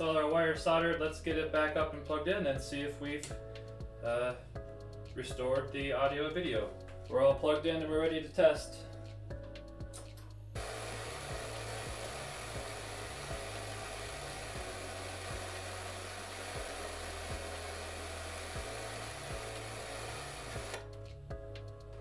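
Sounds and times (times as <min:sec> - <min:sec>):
tv static hiss: 0:10.3 - 0:22.0.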